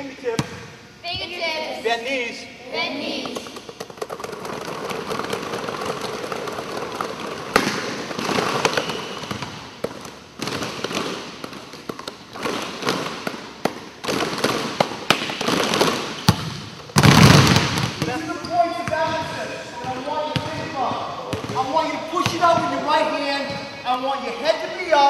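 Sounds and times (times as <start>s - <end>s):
basketballs bouncing on wooden floor: 3.4s - 22.8s.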